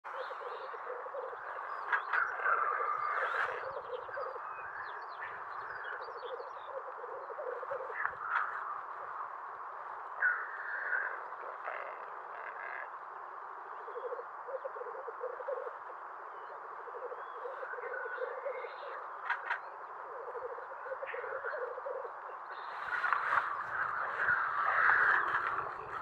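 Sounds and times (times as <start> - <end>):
bird harsh calls: 0.1 - 9.3, 16.8 - 26.0
steady background noise: 0.1 - 26.0
bird croaking rattles: 1.8 - 3.8, 10.2 - 12.9, 19.2 - 19.6, 22.8 - 26.0.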